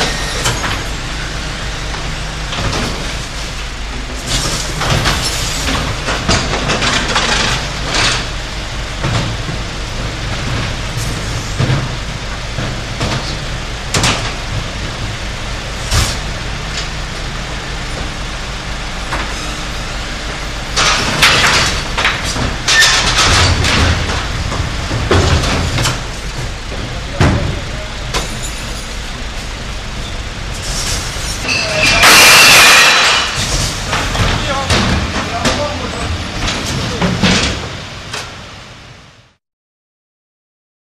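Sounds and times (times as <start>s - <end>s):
garbage truck engine running: 0.0s - 39.4s
loud clattering: 30.5s - 37.8s.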